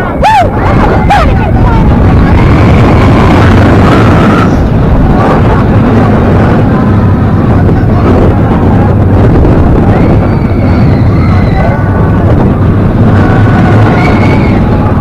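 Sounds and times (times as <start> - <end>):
roller coaster rumbling on track: 0.0 - 15.0
wind buffeting microphone: 0.0 - 15.0.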